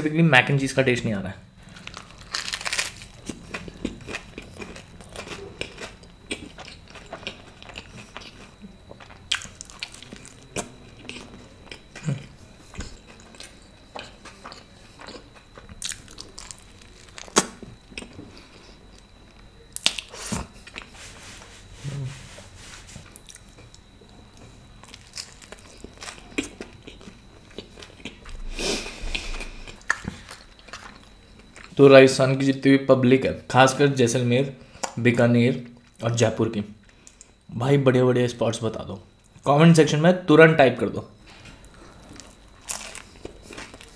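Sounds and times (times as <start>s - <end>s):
crunchy chewing: 1.6s - 22.1s, 23.0s - 31.8s, 41.2s - 43.9s.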